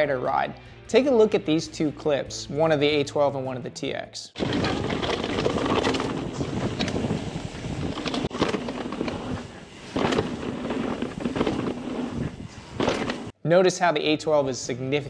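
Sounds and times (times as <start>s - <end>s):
bike chain rattling: 4.4s - 13.3s
wind on microphone: 4.4s - 13.3s
bike tyre noise on dirt: 4.4s - 13.4s.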